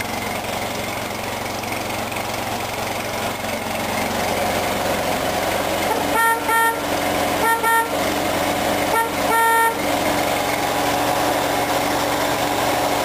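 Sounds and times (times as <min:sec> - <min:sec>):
tractor engine running: 0:00.0 - 0:13.0
tractor horn tooting: 0:05.8 - 0:10.2.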